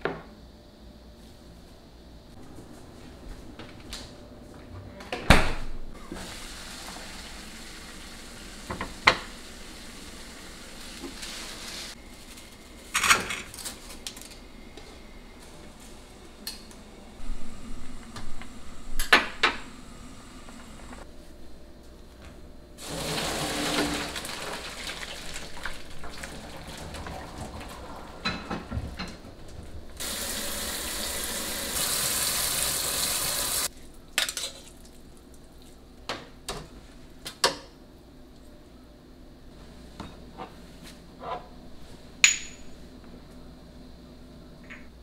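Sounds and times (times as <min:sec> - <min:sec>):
tap water running: 0:06.0 - 0:12.0, 0:22.8 - 0:29.4, 0:30.0 - 0:33.7
water splashing into colander: 0:22.8 - 0:27.8.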